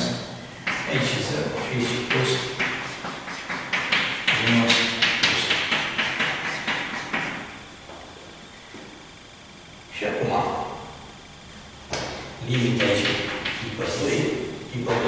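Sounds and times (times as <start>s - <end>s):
chalk tapping on blackboard: 0.6s - 7.6s, 11.9s - 13.6s.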